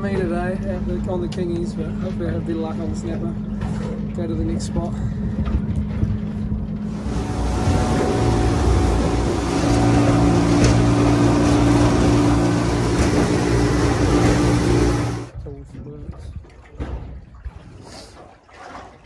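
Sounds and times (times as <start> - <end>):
outboard motor running hard: 0.0 - 15.3
water rushing: 6.9 - 15.3.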